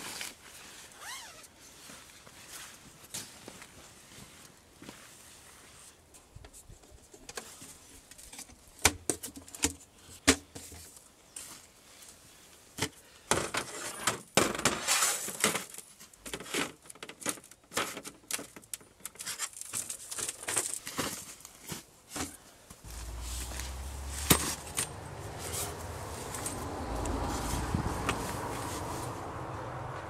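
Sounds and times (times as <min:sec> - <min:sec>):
fabric rustling: 0:22.8 - 0:29.2
folding table legs clattering: 0:23.0 - 0:26.6.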